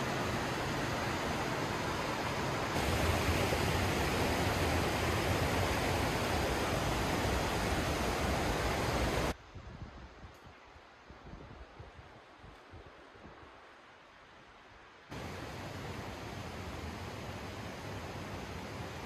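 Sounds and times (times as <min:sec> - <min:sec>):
mountain stream rushing: 0:00.0 - 0:09.4, 0:15.0 - 0:19.0.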